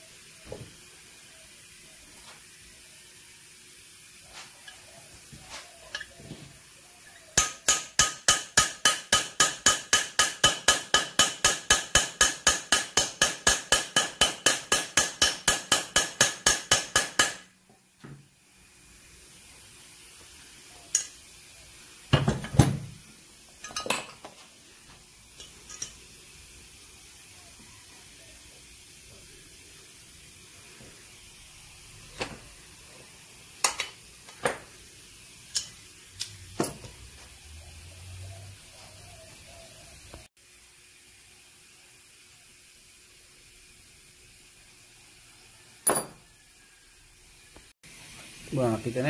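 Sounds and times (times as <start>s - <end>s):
hammer tapping on metal: 7.4s - 17.5s.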